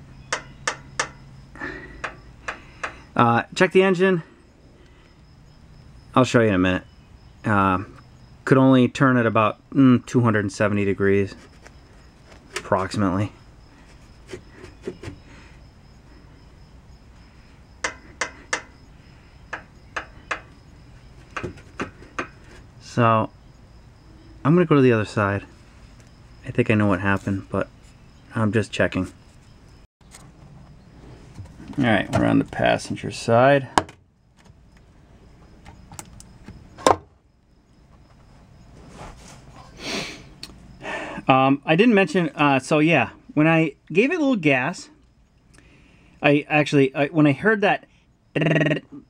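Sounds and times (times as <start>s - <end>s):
sharp metallic engine clicks: 0.3s - 1.4s.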